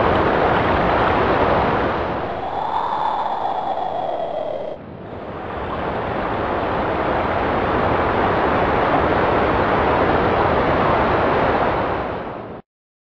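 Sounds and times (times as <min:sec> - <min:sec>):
loud rushing noise: 0:02.0 - 0:04.8.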